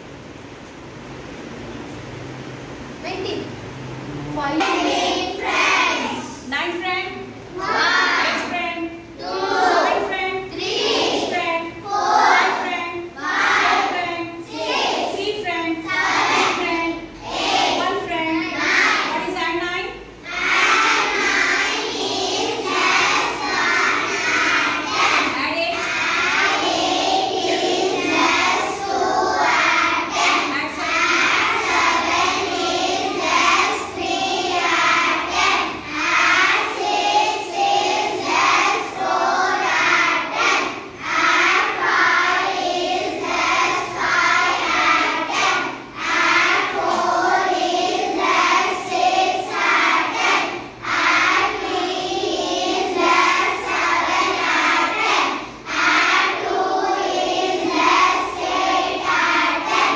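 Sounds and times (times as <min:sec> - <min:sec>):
children singing in chorus: 0:07.6 - 0:08.5, 0:20.2 - 0:59.9.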